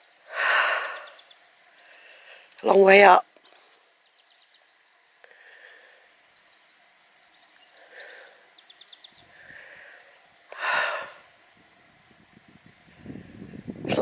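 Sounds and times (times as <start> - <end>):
person breathing: 0.3 - 2.5, 5.2 - 6.2, 7.8 - 8.5, 9.2 - 11.3.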